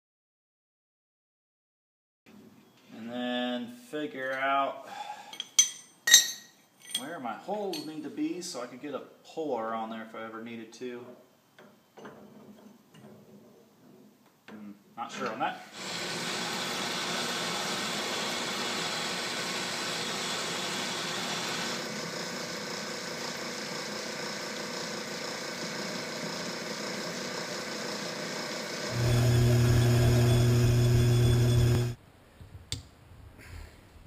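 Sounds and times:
drill press motor hum: 0:15.8 - 0:32.0
metal lathe running: 0:15.8 - 0:32.0.

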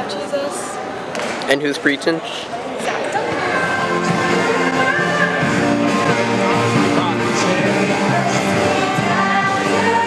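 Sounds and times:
song with singing: 0:03.0 - 0:10.0.

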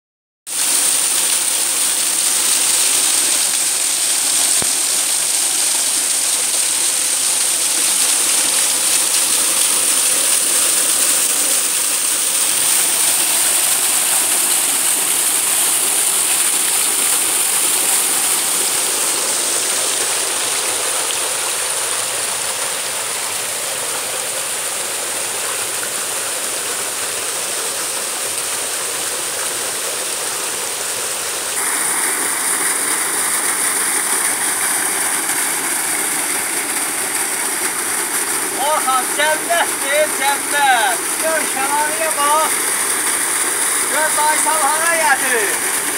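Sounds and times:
waterfall rushing and splashing: 0:00.5 - 0:45.9.

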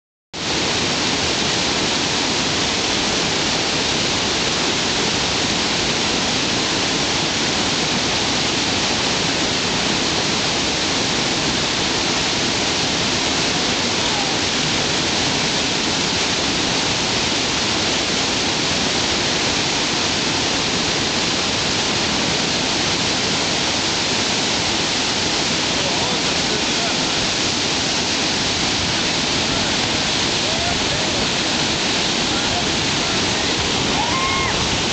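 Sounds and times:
whitewater rapids rushing: 0:00.4 - 0:34.9.

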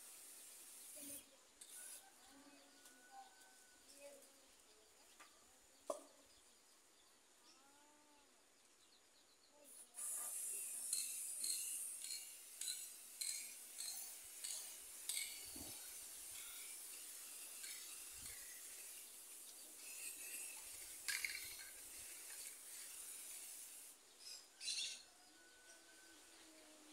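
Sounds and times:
spray paint can hissing: 0:00.0 - 0:02.1, 0:09.8 - 0:25.0.

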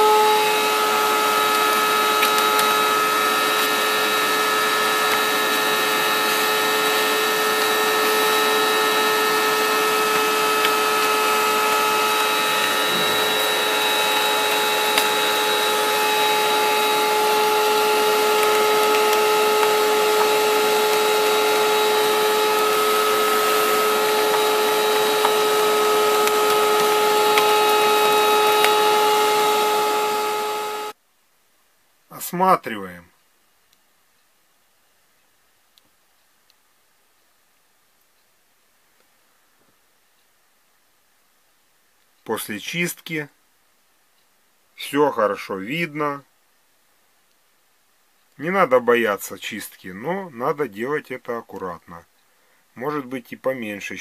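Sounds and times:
vacuum cleaner running: 0:00.0 - 0:31.0.

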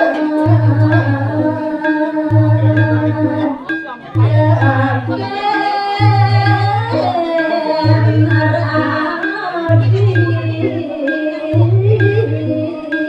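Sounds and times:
low pulsing beat: 0:00.0 - 0:13.0
woman singing into microphone: 0:00.0 - 0:13.0.

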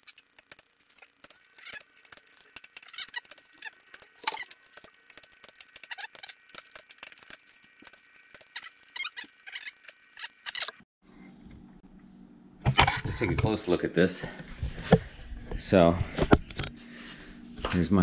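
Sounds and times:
metallic squeaks: 0:08.3 - 0:10.8.

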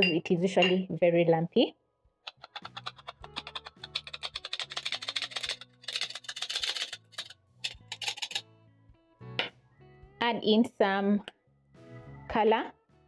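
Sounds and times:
flour sifter clicking: 0:02.3 - 0:08.4
background music: 0:02.3 - 0:13.0.

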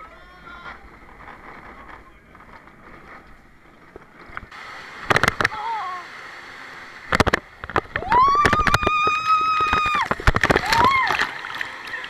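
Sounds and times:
rushing water hiss: 0:04.5 - 0:12.0
riders screaming: 0:08.0 - 0:12.0.

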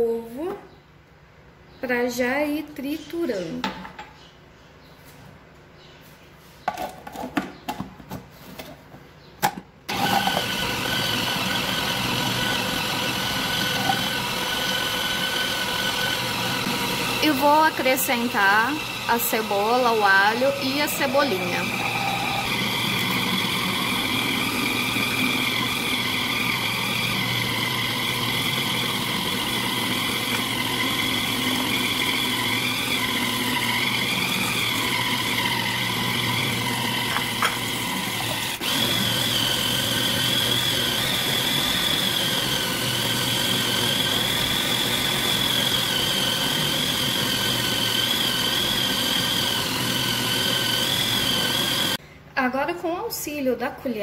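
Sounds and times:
food processor motor whining: 0:09.9 - 0:52.0.

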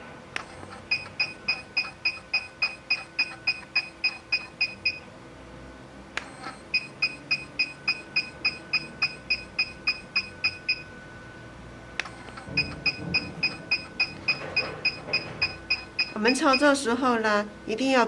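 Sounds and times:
short high beeps: 0:00.9 - 0:05.0, 0:06.7 - 0:10.9, 0:12.1 - 0:16.8
sharp click: 0:12.0 - 0:13.3.

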